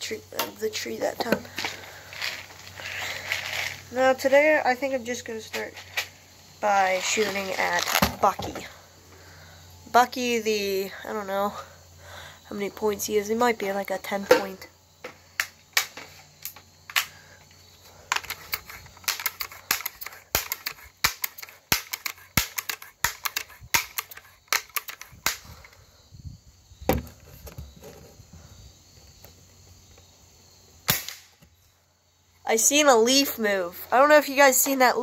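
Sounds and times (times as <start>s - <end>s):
bb gun clicks and clacks: 18.1s - 25.5s
loud crack: 30.8s - 31.4s.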